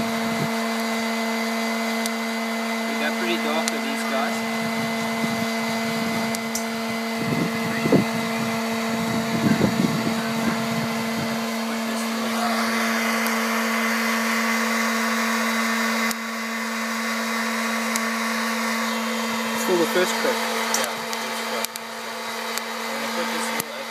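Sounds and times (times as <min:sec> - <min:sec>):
fan motor humming: 0:00.0 - 0:23.9.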